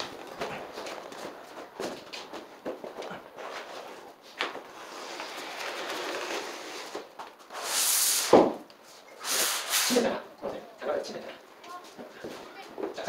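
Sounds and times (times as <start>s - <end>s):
vinyl flooring rustling and swishing: 0.0s - 10.2s.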